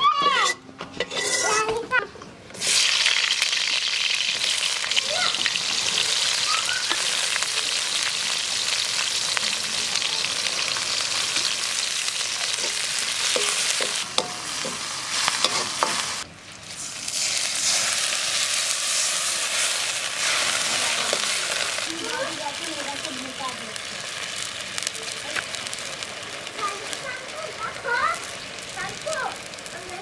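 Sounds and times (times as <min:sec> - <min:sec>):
metal spoon scraping a pan: 0:00.2 - 0:01.9, 0:12.4 - 0:16.2
onions sizzling in hot oil: 0:02.5 - 0:30.0.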